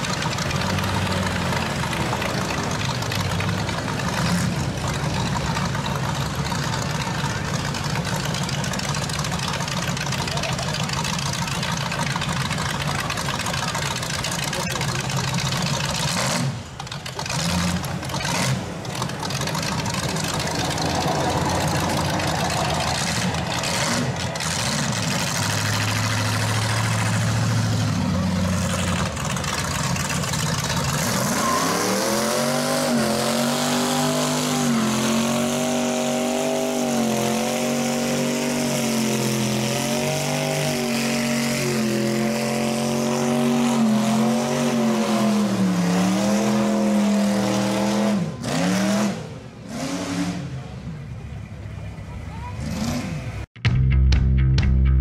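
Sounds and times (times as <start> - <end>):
tyres spinning on pavement: 0.0 - 33.0
passing street traffic: 0.0 - 55.0
car engine revving high: 14.5 - 50.7.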